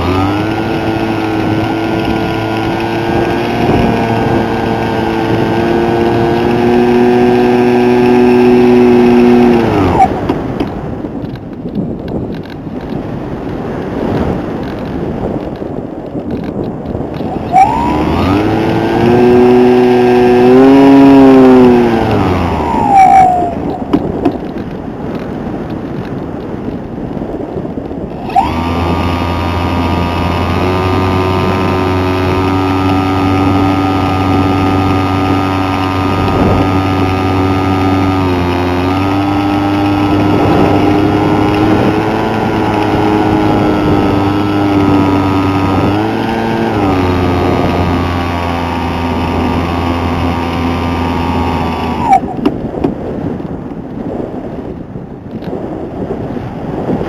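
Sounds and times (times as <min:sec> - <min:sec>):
model aircraft motor: 0:00.0 - 0:53.4
wind rushing: 0:00.0 - 0:57.0.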